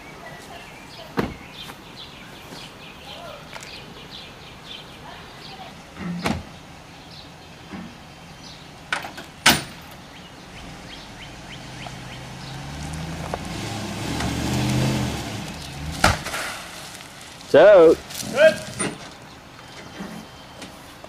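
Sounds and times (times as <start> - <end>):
truck engine running: 9.8 - 19.6.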